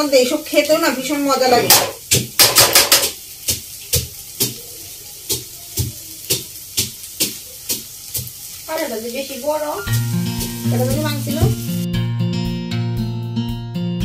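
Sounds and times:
food sizzling: 0:00.0 - 0:11.9.

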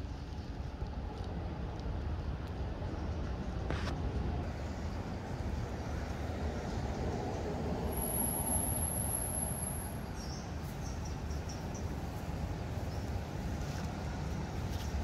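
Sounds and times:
outdoor rumble and hiss: 0:00.0 - 0:15.0
high-pitched whine: 0:07.8 - 0:10.0.

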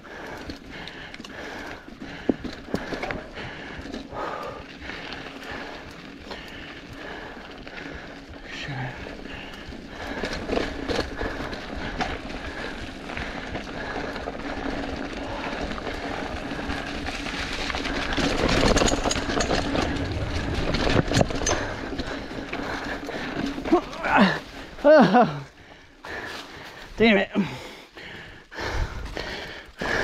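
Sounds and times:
bike rattling over bumps: 0:00.0 - 0:30.0
bike tyres crunching leaves: 0:00.0 - 0:30.0
wheel knocking on rocks: 0:15.2 - 0:24.4.

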